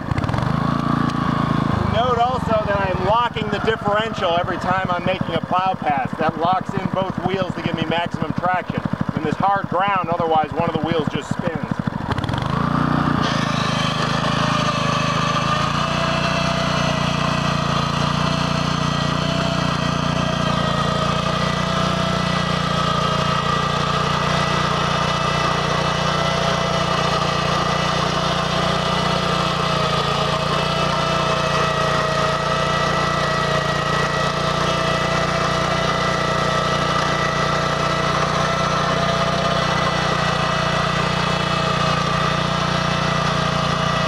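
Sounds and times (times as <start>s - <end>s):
walk-behind tractor engine running: 0.0s - 44.0s
steady whine: 1.1s - 11.8s.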